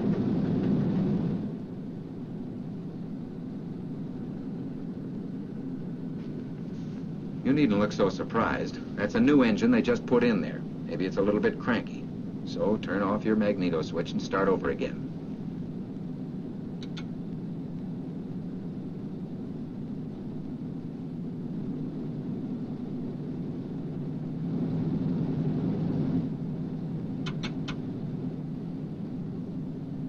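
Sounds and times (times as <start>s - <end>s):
radial aircraft engines rumbling: 0.0s - 30.0s
short clicks: 16.8s - 17.1s, 27.2s - 27.8s.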